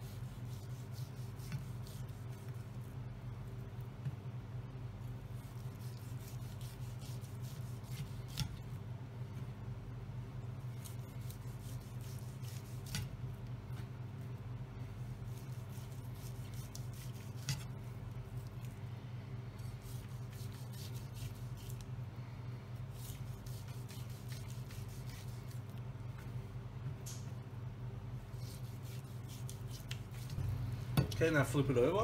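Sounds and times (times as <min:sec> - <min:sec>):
knife slicing meat: 0:00.0 - 0:02.9, 0:05.3 - 0:08.7, 0:10.7 - 0:13.2, 0:15.1 - 0:18.8, 0:19.6 - 0:21.8, 0:22.9 - 0:25.7, 0:28.3 - 0:30.4
steady low hum: 0:00.0 - 0:32.0.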